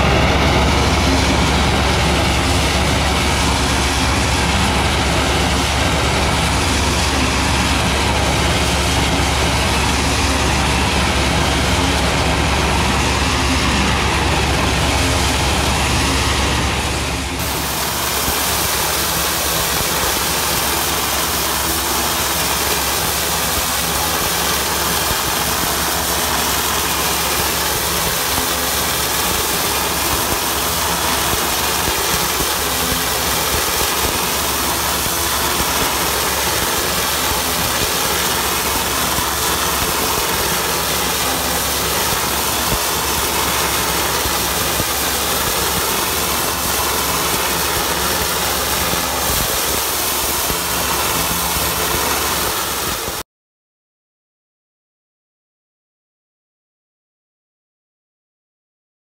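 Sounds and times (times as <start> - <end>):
water jet hissing on concrete: 0.0 - 53.2.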